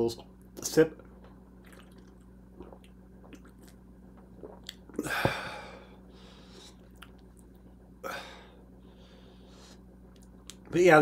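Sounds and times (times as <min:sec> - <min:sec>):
man sipping and swallowing: 0:01.0 - 0:05.7.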